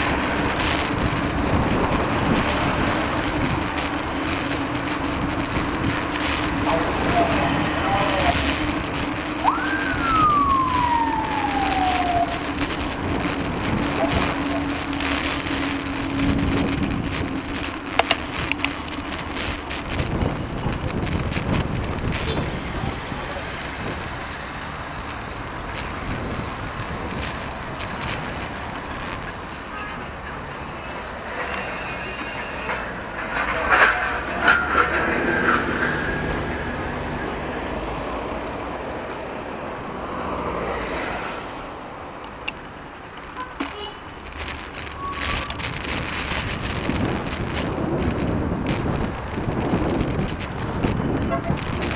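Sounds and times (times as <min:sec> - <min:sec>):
sharp clicks: 0:00.0 - 0:22.4
wind on microphone: 0:00.0 - 0:29.3, 0:44.0 - 0:51.9
passing traffic: 0:00.0 - 0:51.9.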